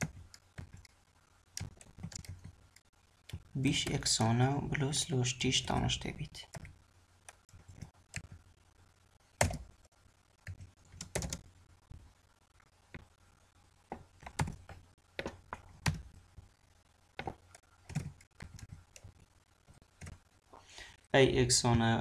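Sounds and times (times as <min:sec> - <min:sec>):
keyboard typing: 0:00.0 - 0:04.4, 0:05.6 - 0:08.4, 0:09.3 - 0:11.5, 0:13.9 - 0:16.2, 0:17.2 - 0:20.2.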